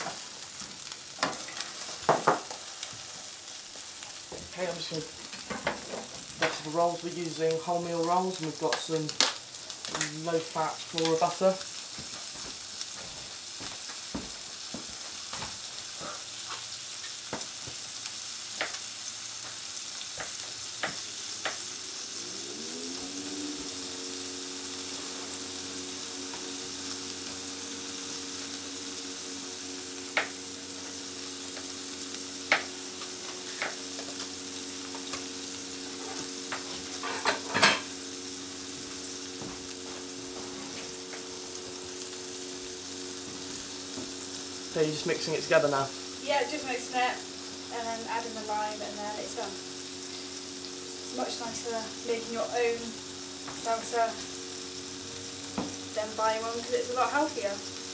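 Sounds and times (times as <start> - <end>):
burgers sizzling in a pan: 0.0 - 57.9
steady hum rising in pitch: 20.6 - 57.9.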